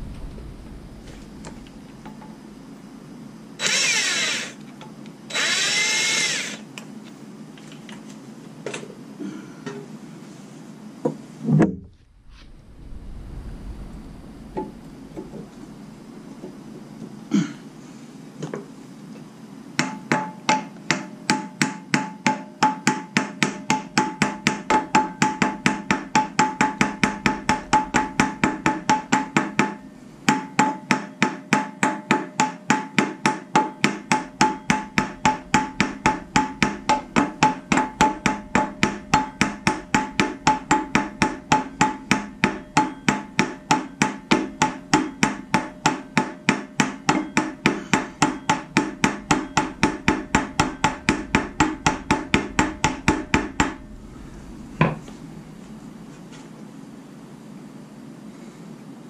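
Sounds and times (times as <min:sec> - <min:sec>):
sledgehammer striking metal: 0:22.8 - 0:31.1, 0:32.7 - 0:56.1.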